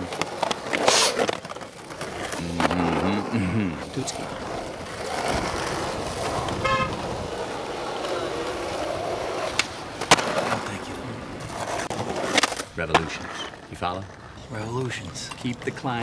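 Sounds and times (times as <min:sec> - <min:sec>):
skateboard wheels rolling on asphalt: 0:00.0 - 0:16.0
horn toot: 0:06.6 - 0:07.1.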